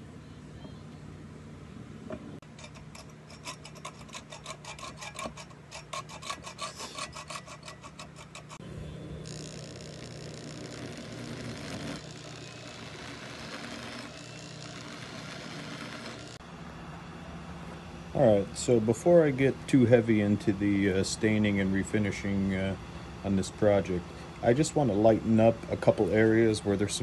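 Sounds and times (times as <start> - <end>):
file grinding spinning metal: 2.4 - 16.4
hacksaw cutting metal: 2.4 - 16.4
cordless drill running: 9.2 - 16.4.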